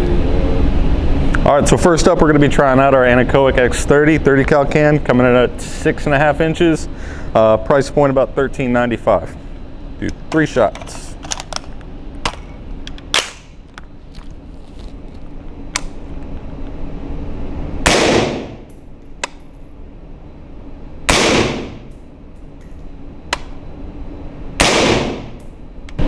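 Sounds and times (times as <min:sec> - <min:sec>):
suppressed rifle shots: 0:17.8 - 0:18.6, 0:21.1 - 0:21.8, 0:24.6 - 0:25.3.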